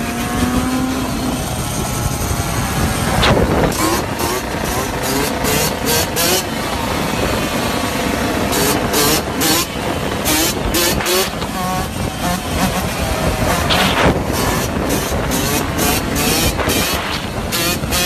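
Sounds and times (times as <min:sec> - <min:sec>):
dirt bike engine revving: 0:00.0 - 0:18.0
short rushes of noise: 0:13.5 - 0:14.8.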